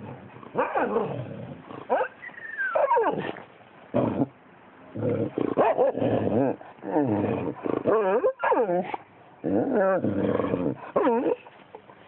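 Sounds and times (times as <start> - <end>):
dog whining and yelping: 1.9 - 3.3.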